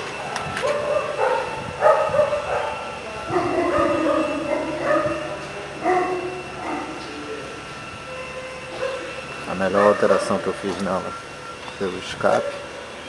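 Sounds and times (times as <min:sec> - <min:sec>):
dog barking and yelping: 0:00.6 - 0:07.0.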